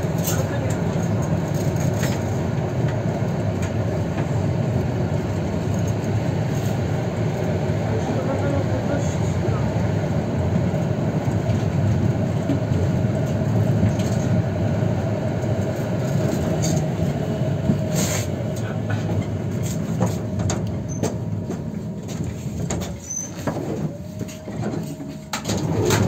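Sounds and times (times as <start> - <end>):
tram rumbling on rails: 0.0 - 26.0.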